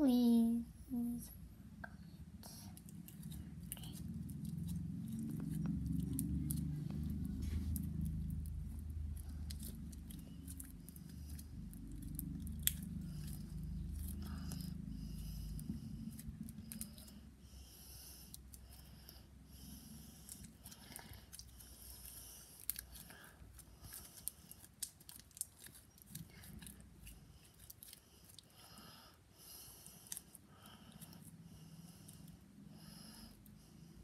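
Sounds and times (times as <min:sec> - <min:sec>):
low rumble: 0:01.2 - 0:22.1
slime squishing and popping: 0:02.8 - 0:14.6, 0:20.3 - 0:28.0.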